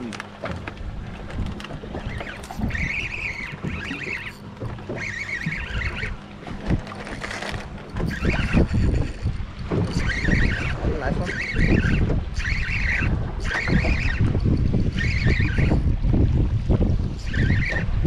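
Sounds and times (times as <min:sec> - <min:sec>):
water lapping around boat: 0:00.0 - 0:18.0
wind buffeting microphone: 0:00.0 - 0:18.0
high wavering chirring: 0:02.0 - 0:06.3, 0:07.8 - 0:16.0, 0:17.2 - 0:17.9.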